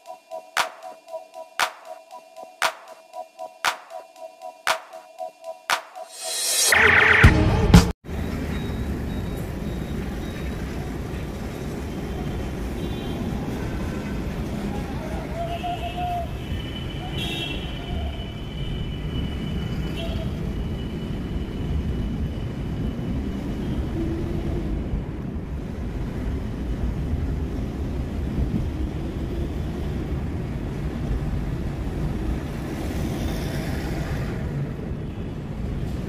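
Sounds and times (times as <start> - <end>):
thin high tone: 0.0 - 7.5.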